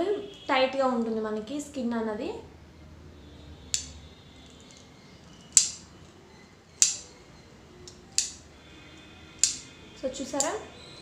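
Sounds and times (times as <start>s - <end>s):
threading tool snapping shut: 5.6s - 5.8s, 6.8s - 7.1s, 7.9s - 8.4s, 9.4s - 9.7s, 10.4s - 10.6s.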